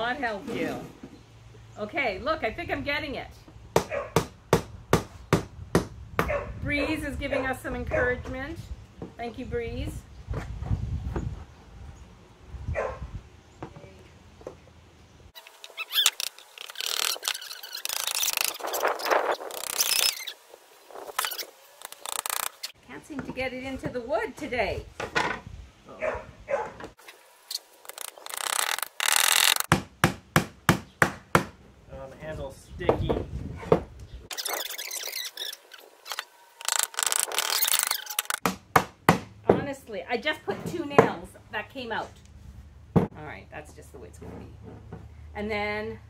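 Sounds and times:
short bursts of rasping: 15.4s - 20.4s, 21.0s - 22.8s, 27.0s - 29.7s, 34.3s - 38.4s
nails squealing in wood: 15.4s - 22.8s, 27.0s - 29.7s, 34.3s - 38.4s.

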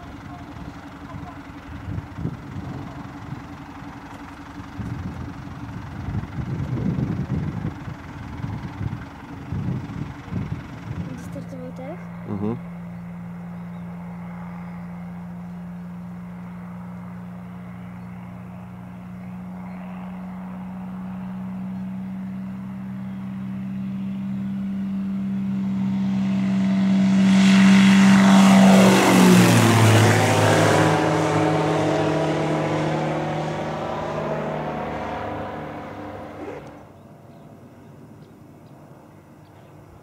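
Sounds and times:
propeller airplane engine drone: 0.0s - 40.0s.

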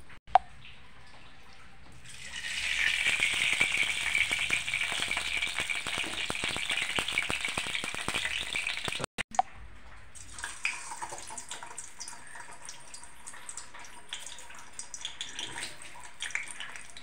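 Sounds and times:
oil sizzling and popping: 2.0s - 9.2s.

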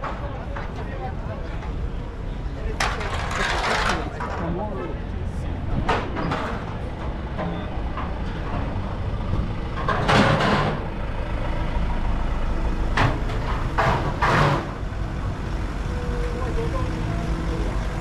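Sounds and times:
diesel engine idling: 4.0s - 18.0s.

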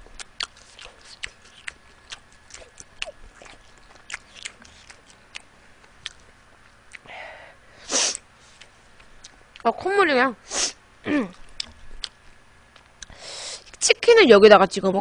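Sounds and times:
mouth clicks and smacks chewing: 0.2s - 6.3s
nose blowing into tissue: 7.8s - 8.2s.

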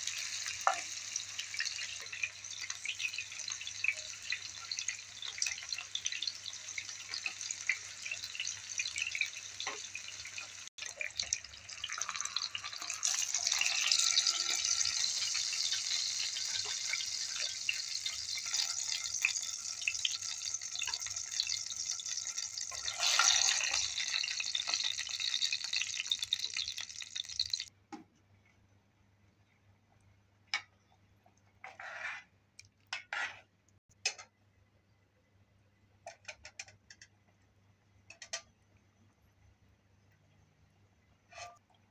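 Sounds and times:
eggplant sizzling in hot oil: 0.0s - 27.7s.

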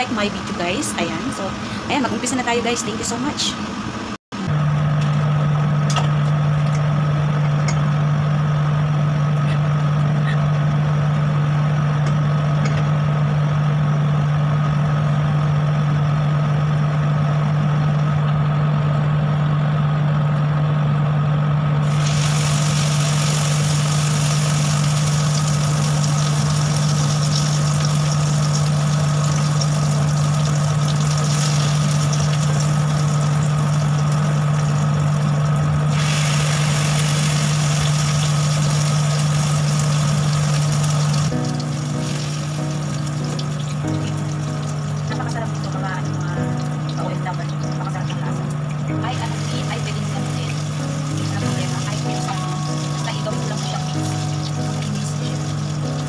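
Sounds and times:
batter sizzling in oil: 21.8s - 48.0s, 49.1s - 56.0s.

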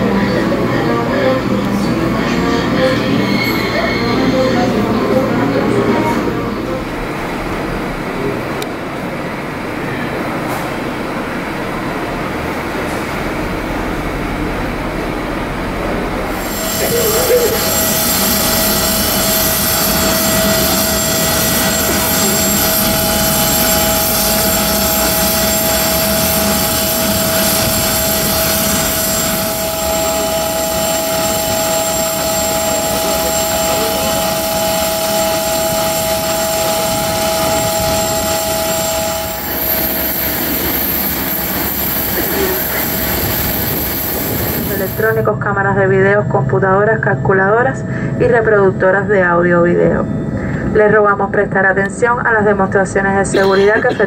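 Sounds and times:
terminal hall hum: 0.0s - 54.0s
jet engine rush and turbine whine: 6.8s - 45.5s
faint voices: 53.0s - 54.0s.

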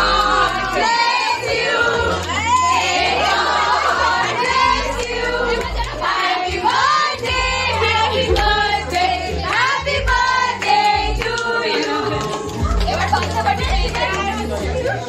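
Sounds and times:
song with singing voices: 0.0s - 15.0s.

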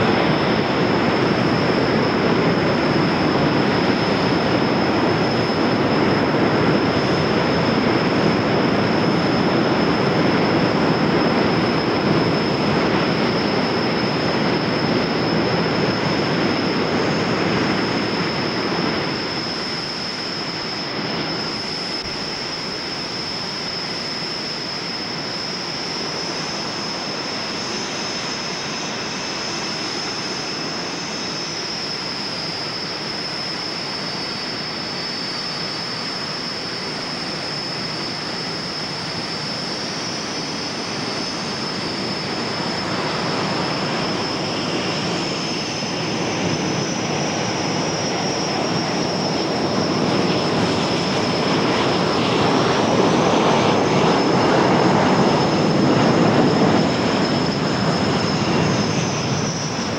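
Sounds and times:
jet engine whine and rush: 0.0s - 59.9s.

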